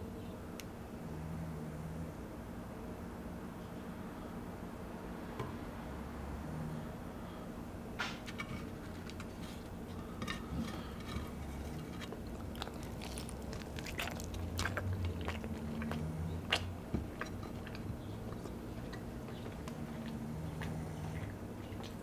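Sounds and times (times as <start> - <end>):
person chewing food: 8.8 - 22.0.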